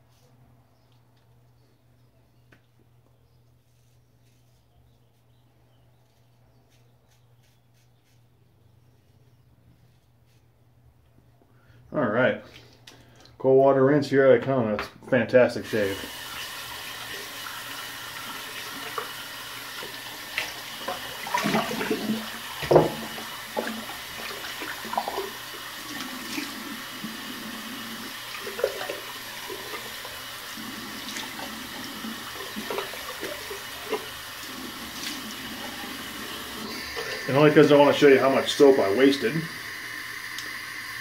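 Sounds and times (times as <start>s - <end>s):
tap water running into sink: 15.6s - 41.0s
water splashing face: 18.2s - 37.4s.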